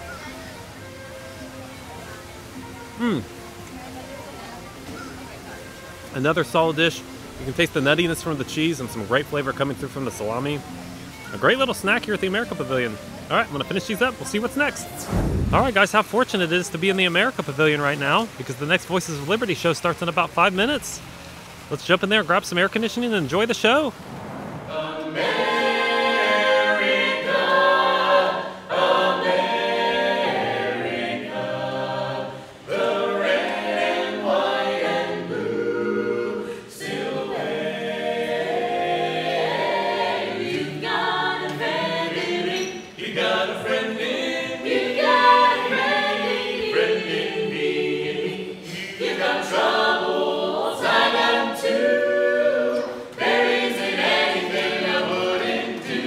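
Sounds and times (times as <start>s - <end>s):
a cappella group singing: 24.6s - 56.0s.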